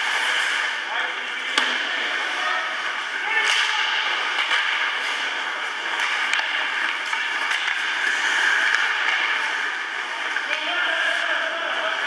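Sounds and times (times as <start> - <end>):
hockey sticks and puck clicking: 1.4 - 2.4, 3.2 - 11.3.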